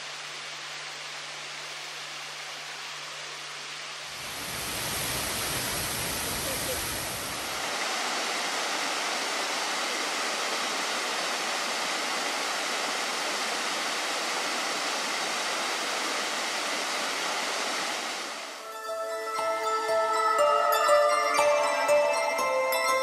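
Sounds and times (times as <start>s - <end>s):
waterfall splashing into pool: 1.5s - 18.6s.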